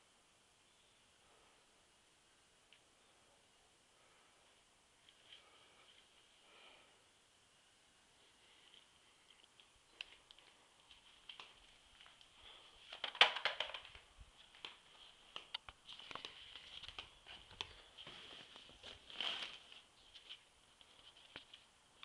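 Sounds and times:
fabric cover rustling: 14.0s - 21.7s.

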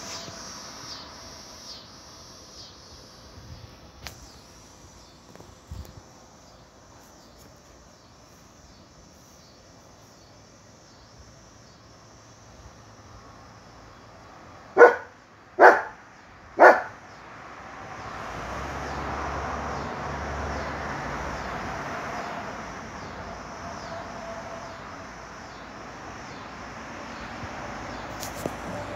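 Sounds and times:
faint insect chirping: 0.0s - 28.9s
dog barking: 14.8s - 16.0s, 16.6s - 17.0s.

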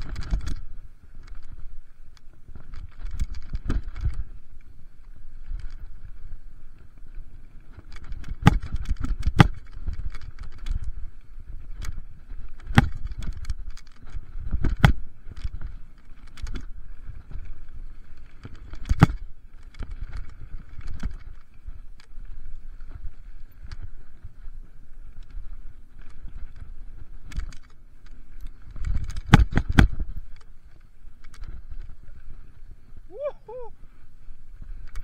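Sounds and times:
mountain bike rattling: 0.0s - 35.0s
wind rumble on microphone: 0.0s - 35.0s
bike knocking on bumps: 7.7s - 11.0s, 11.6s - 24.3s, 26.0s - 30.6s.

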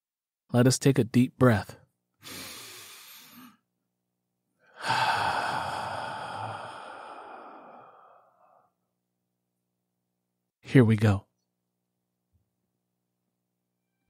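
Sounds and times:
man breathing deeply: 2.2s - 3.7s, 4.6s - 8.8s.

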